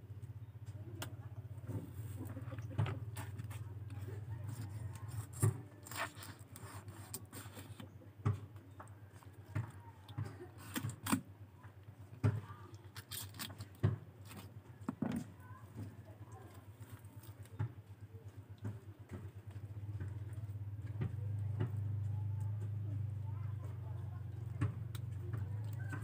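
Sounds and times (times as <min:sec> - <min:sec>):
knife scraping fish: 0:04.4 - 0:07.8.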